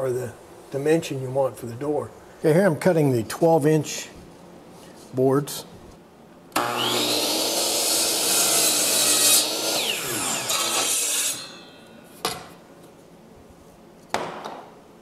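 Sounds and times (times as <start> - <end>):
saw blade winding down: 6.6 - 11.7
miter saw cutting wood: 6.6 - 11.8.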